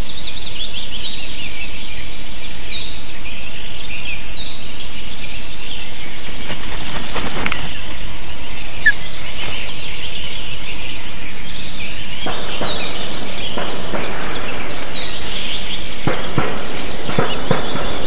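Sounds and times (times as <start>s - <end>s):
birds thumping on nest: 6.2s - 9.8s
osprey whistled calls: 6.2s - 17.9s.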